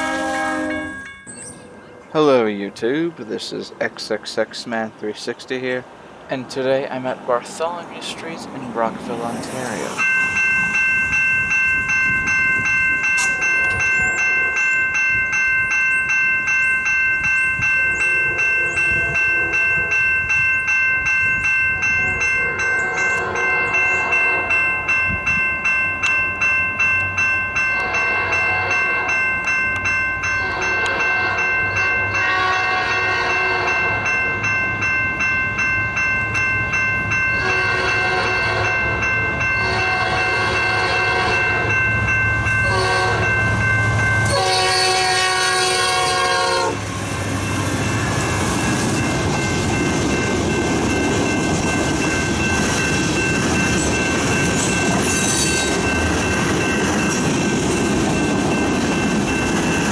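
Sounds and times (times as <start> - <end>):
locomotive horn blasts: 0.0 - 1.1, 22.2 - 24.6, 27.8 - 29.2, 30.3 - 34.1, 37.4 - 39.0, 39.6 - 41.7, 42.6 - 43.4, 44.2 - 46.8
crossing signal bell ringing: 0.0 - 3.2, 7.6 - 59.9.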